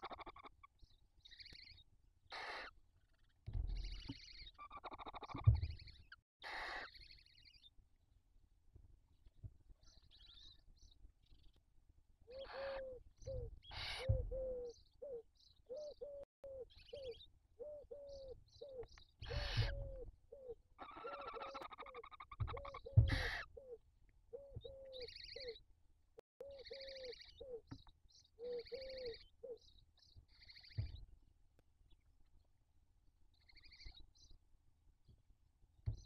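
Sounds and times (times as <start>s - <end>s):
owl harsh screeches: 2.3s - 2.7s, 6.4s - 7.0s
owl raspy hissing calls: 6.4s - 7.0s.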